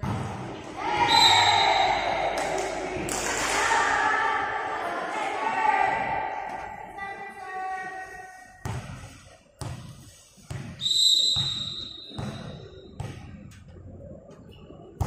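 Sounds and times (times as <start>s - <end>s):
referee's whistle blast: 1.0s - 2.1s, 10.8s - 12.8s.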